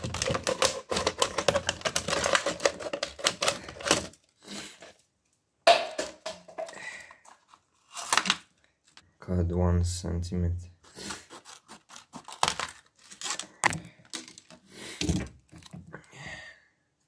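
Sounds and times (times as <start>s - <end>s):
plastic bottle crackling: 0.0s - 4.4s, 10.9s - 15.9s.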